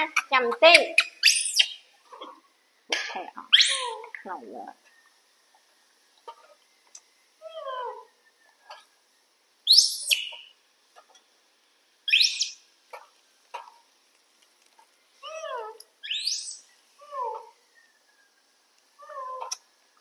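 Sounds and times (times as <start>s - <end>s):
macaque high squeals: 0.7s - 1.8s, 3.5s - 4.0s, 9.7s - 10.5s, 12.1s - 12.6s, 15.2s - 17.5s
macaque whimpering calls: 3.5s - 4.1s, 7.4s - 8.1s, 15.2s - 17.6s, 19.0s - 19.6s.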